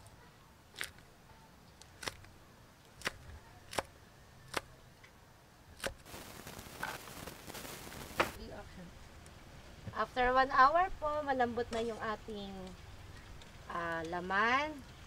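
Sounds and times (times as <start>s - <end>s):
hiss with small crackles: 5.8s - 10.0s.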